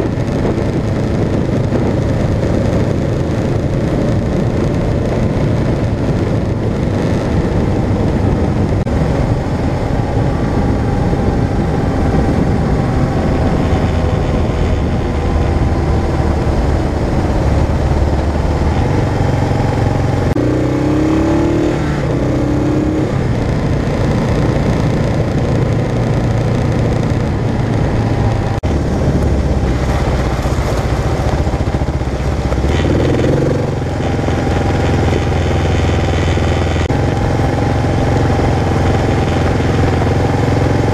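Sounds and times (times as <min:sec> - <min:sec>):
motorcycle engine running: 0:00.0 - 0:40.9
wind noise: 0:00.0 - 0:40.9
tyres on gravel: 0:23.4 - 0:37.7.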